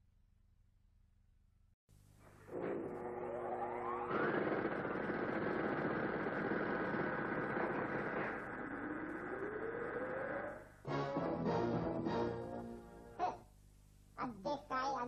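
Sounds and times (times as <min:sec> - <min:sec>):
electronic synthesized drone: 0:02.4 - 0:11.9
tone rising in pitch: 0:02.6 - 0:05.5, 0:08.5 - 0:12.8.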